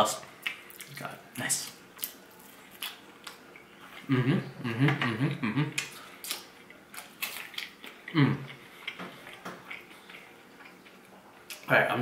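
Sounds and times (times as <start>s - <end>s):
person chewing crunchy food: 1.7s - 4.1s, 5.7s - 11.7s
person humming: 4.0s - 5.9s, 8.1s - 8.5s.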